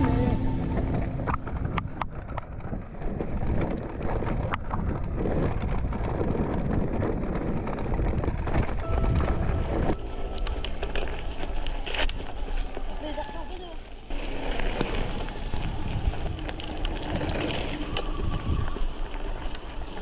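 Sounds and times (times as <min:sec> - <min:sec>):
wind buffeting microphone: 0:00.0 - 0:13.1, 0:14.0 - 0:20.0
mountain bike rattling on stony trail: 0:00.1 - 0:20.0.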